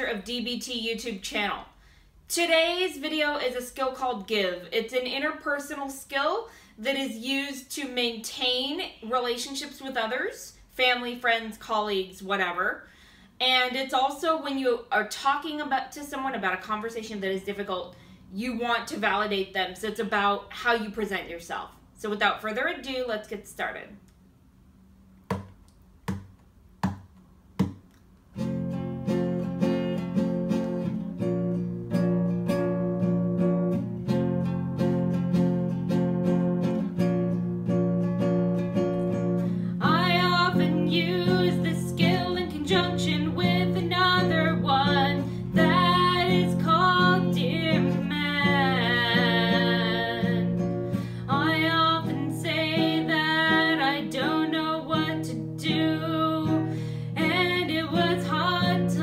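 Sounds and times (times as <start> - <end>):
short taps: 25.2 - 28.1
classical guitar chords: 28.3 - 59.0
woman singing: 39.8 - 50.7, 51.3 - 59.0.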